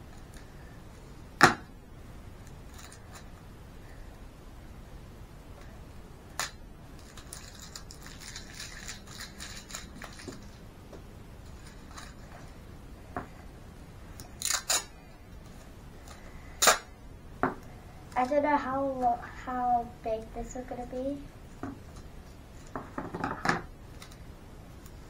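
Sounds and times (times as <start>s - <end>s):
paper crinkling: 7.0s - 10.6s
tape ripping off roll: 16.6s - 16.9s.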